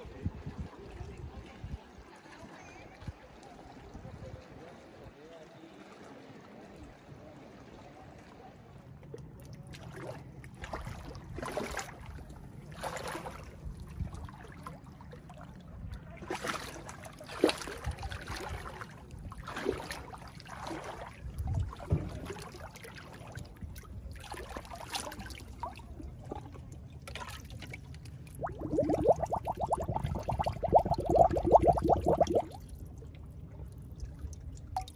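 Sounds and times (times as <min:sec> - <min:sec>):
water lapping against rocks: 0:09.2 - 0:14.8, 0:16.2 - 0:25.9, 0:27.0 - 0:32.8.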